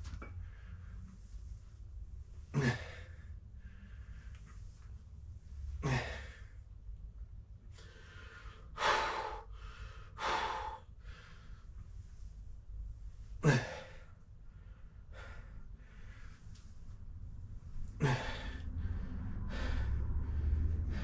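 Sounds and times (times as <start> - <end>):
man breathing hard: 2.4 - 6.8, 7.6 - 12.3, 13.3 - 21.0
low falling grunt: 2.5 - 3.0, 5.8 - 6.4, 13.4 - 14.0, 18.0 - 18.6.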